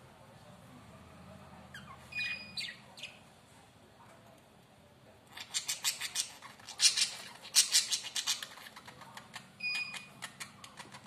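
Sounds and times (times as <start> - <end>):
budgie chirp: 1.7 - 3.2
budgie beaks clicking and scratching: 5.3 - 11.0.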